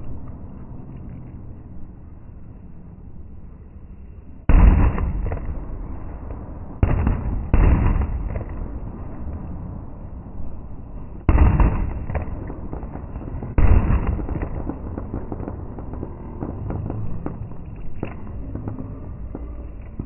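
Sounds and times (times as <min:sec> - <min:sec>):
crackling of small fireworks: 0:00.0 - 0:20.0
fireworks booming: 0:04.4 - 0:10.4, 0:11.0 - 0:20.0.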